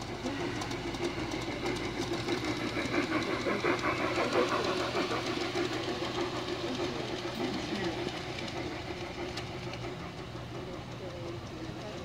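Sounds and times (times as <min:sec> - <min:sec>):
model train running on track: 0:00.0 - 0:12.0.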